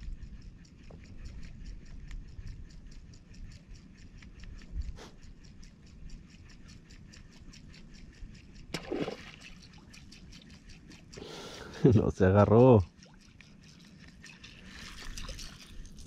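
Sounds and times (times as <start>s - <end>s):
fishing reel ticking: 0.0s - 16.0s
water: 0.0s - 16.0s
fish splash: 8.7s - 9.7s.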